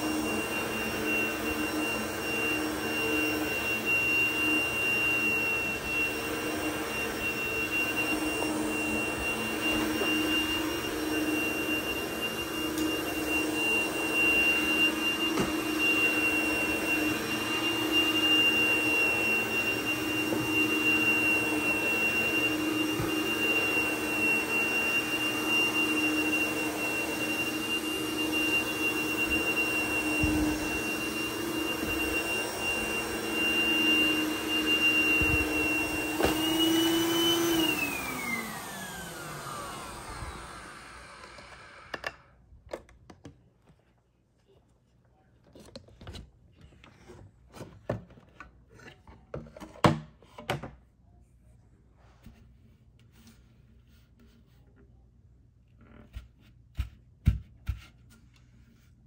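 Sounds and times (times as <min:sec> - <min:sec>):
vacuum cleaner motor whine: 0:00.0 - 0:42.4.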